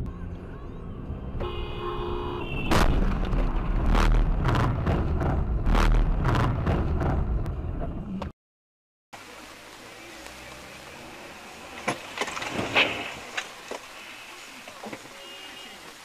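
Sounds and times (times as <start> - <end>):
horn tone: 1.4 - 2.8
vehicle crash bangs and thumps: 2.7 - 7.4
heavy low rumble: 2.8 - 8.3.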